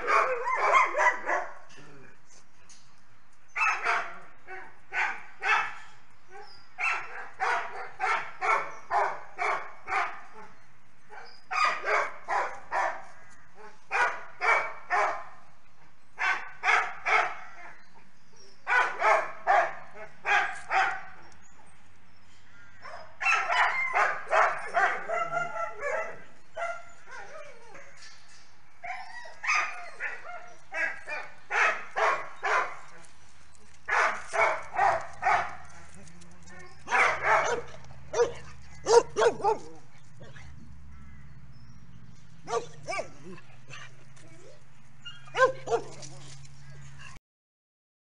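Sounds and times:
dog barking: 0.0 - 1.6, 3.6 - 5.8, 6.8 - 10.5, 11.1 - 13.0, 13.6 - 15.3, 16.2 - 17.5, 18.7 - 21.1, 22.8 - 26.8, 29.5 - 32.8, 33.9 - 35.6, 36.9 - 39.8, 42.5 - 43.2, 45.3 - 46.0.

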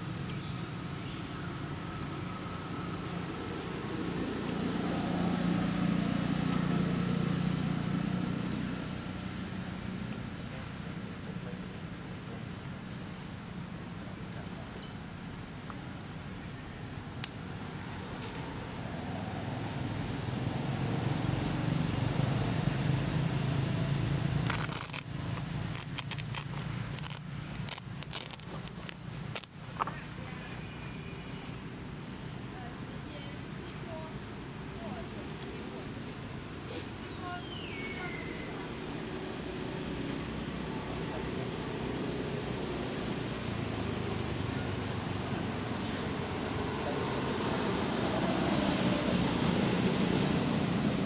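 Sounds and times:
passing vehicle engine hum: 0.0 - 14.0, 16.3 - 51.0
crackling and scraping clicks: 24.4 - 30.0.

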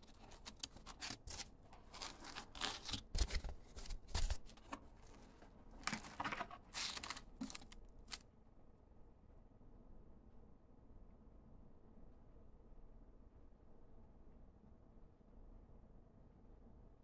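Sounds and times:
foam rustling in cardboard box: 0.0 - 8.2.

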